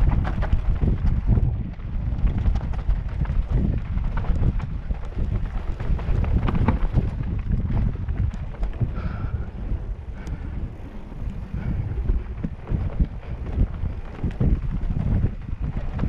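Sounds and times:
tyres crunching over dirt: 0:00.0 - 0:09.3
bike rattling and clicking: 0:00.0 - 0:16.0
wind buffeting microphone: 0:00.0 - 0:16.0.

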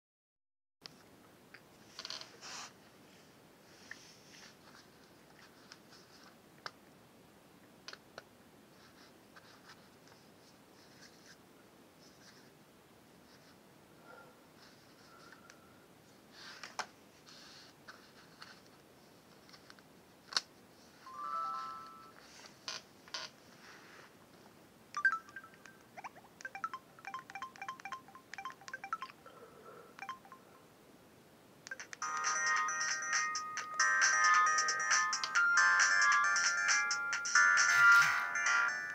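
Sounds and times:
phones scratching and rustling on carpet: 0:01.9 - 0:06.4, 0:08.8 - 0:11.4, 0:16.3 - 0:19.8, 0:20.8 - 0:24.4, 0:37.4 - 0:38.8
phone key beeps: 0:25.0 - 0:29.2, 0:30.0 - 0:30.4.

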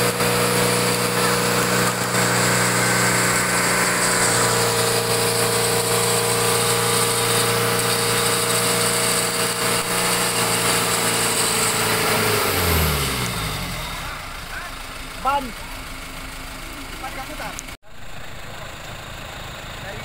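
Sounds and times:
electric winch motor whine: 0:00.0 - 0:14.4.

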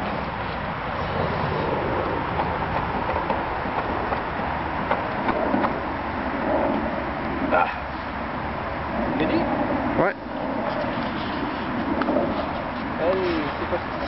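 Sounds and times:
steady rushing background noise: 0:00.0 - 0:14.0
propeller flicked clicks and pops: 0:02.0 - 0:05.8, 0:11.8 - 0:14.0.

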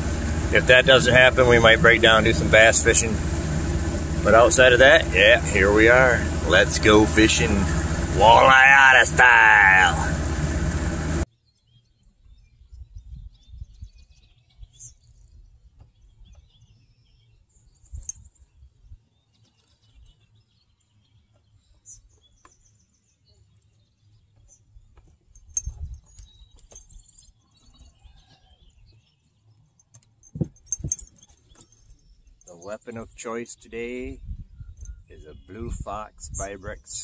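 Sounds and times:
low rumble: 0:00.0 - 0:11.3
faint bird chirps: 0:26.0 - 0:29.6.

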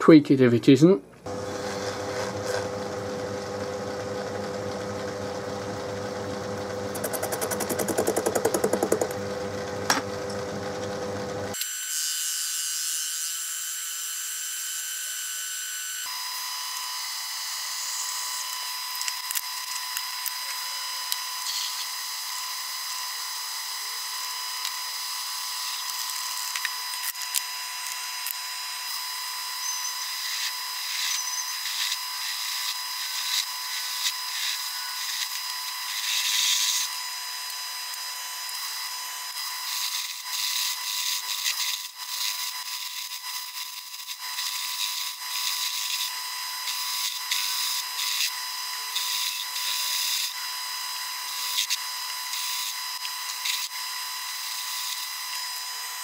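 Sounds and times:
scraping of metal cutting: 0:01.3 - 0:03.0, 0:06.6 - 0:11.7
metal lathe motor whine: 0:01.3 - 0:11.7, 0:20.2 - 0:43.6, 0:44.2 - 0:56.0.

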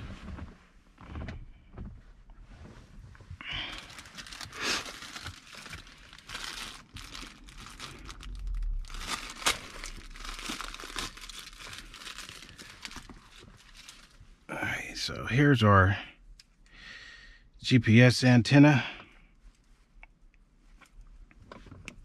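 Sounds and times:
plastic bag crinkling: 0:03.5 - 0:14.2.

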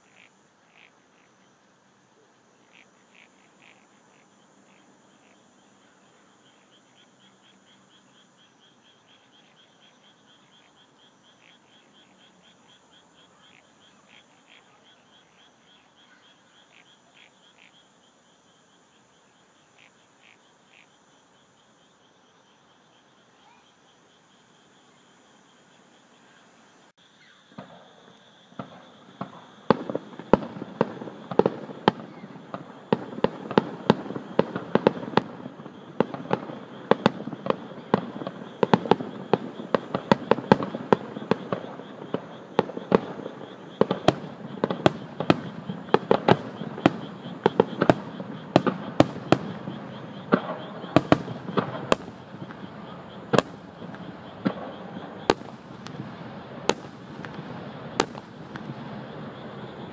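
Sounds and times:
firework shells bursting: 0:28.5 - 0:59.6
crackling rumble: 0:28.5 - 0:59.9.

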